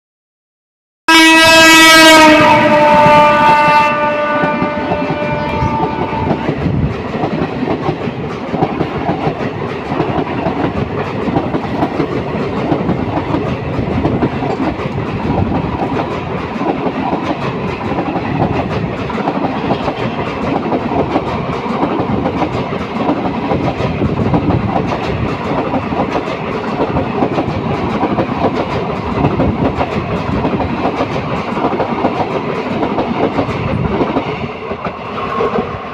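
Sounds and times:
locomotive horn: 1.1s - 6.5s
clickety-clack over rail joints: 2.4s - 35.9s
train wheels rumbling and rattling: 2.4s - 35.9s.

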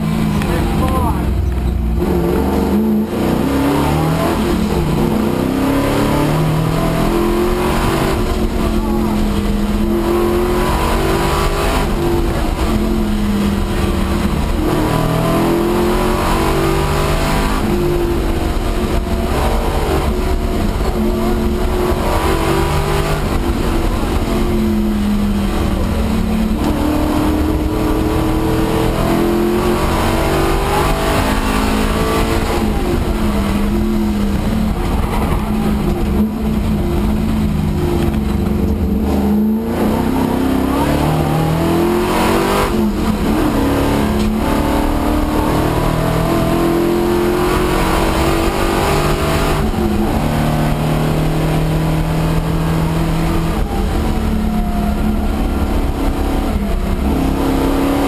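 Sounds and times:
car engine revving in cabin: 0.0s - 58.0s.

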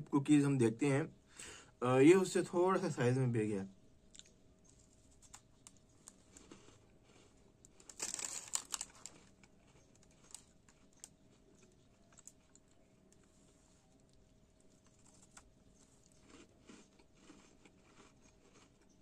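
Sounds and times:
chewing crunchy cookie: 4.0s - 19.0s.

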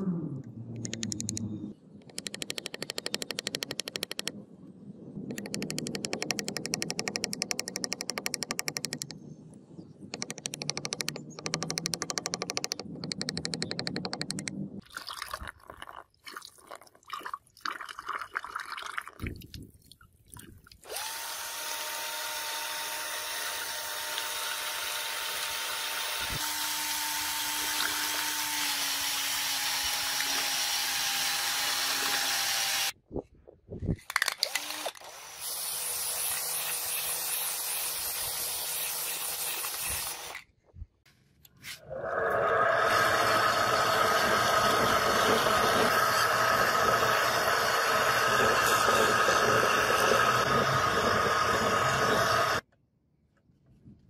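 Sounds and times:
cordless drill whining: 20.9s - 33.0s, 34.4s - 35.7s.

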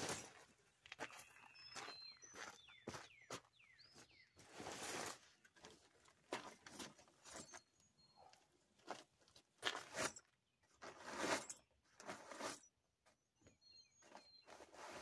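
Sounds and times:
footsteps on wood chips: 0.0s - 7.6s
bird chirping: 1.0s - 4.6s, 7.2s - 8.6s, 13.1s - 14.9s.

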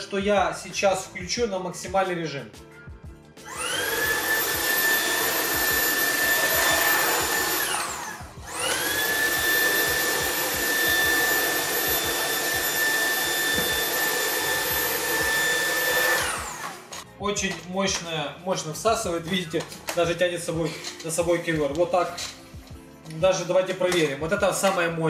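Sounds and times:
vacuum cleaner motor whine: 3.5s - 17.0s.

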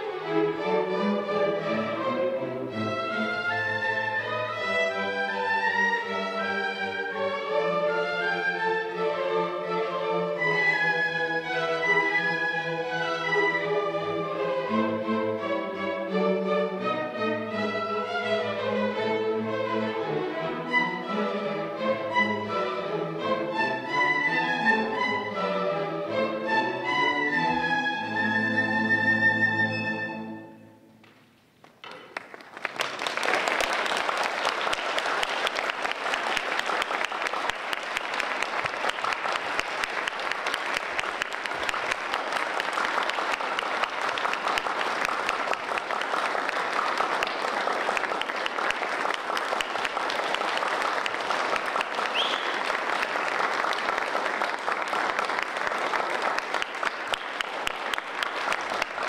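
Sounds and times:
audience applause: 31.6s - 59.0s.

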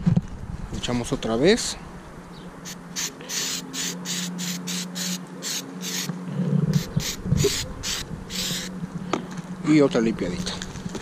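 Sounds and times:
spray can hissing: 2.7s - 6.1s, 6.7s - 8.7s.

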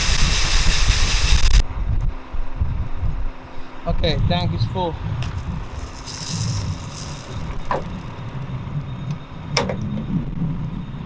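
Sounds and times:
tractor engine running: 5.0s - 10.4s.

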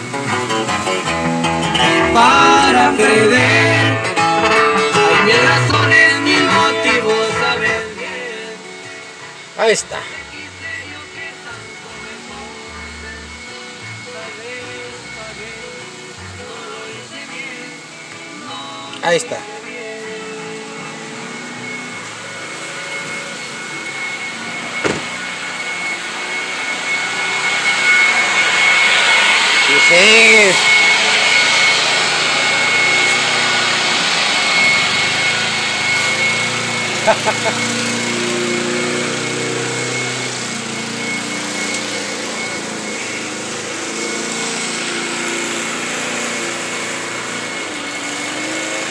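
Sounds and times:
lawn mower engine running: 0.0s - 48.9s
leaf blower whining: 0.0s - 48.9s
sharp knock: 24.8s - 25.1s.

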